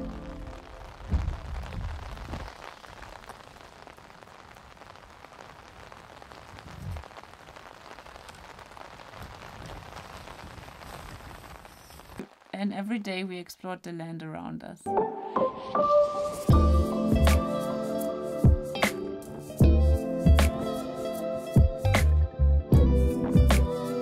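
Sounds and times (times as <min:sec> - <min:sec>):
rain pattering on tent fabric: 0:00.0 - 0:13.1.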